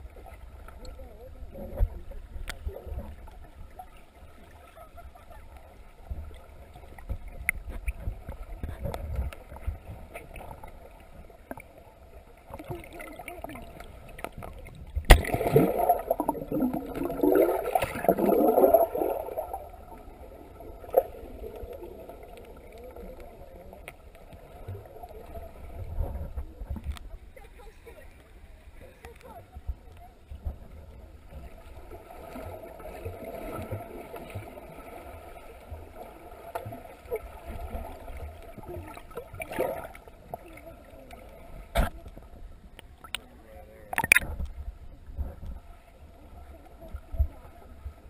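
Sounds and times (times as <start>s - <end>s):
low rumble of moving water: 0.0s - 48.0s
gurgling splashing water and bubbles: 6.2s - 26.8s, 31.3s - 42.3s, 43.9s - 44.5s.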